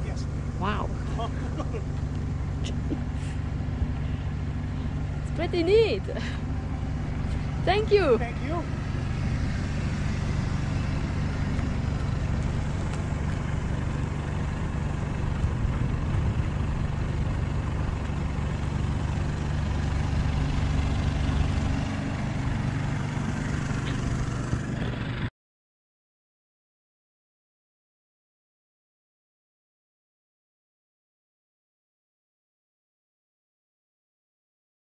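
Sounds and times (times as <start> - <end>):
vehicle engine idling: 0.0 - 25.3.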